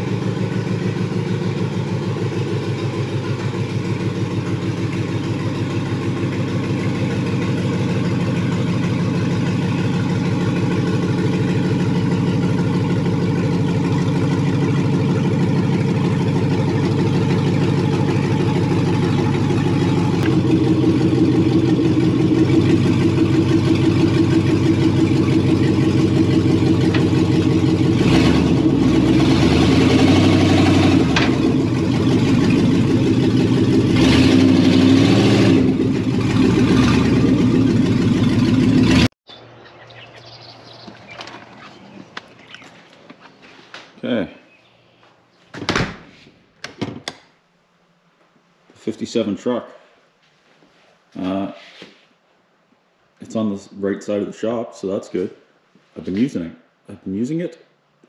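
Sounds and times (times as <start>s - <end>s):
pickup truck engine running: 0.0s - 42.6s.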